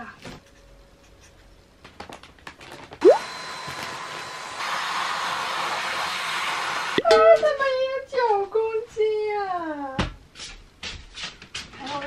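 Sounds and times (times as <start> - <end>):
vacuum cleaner running: 3.0 - 7.0.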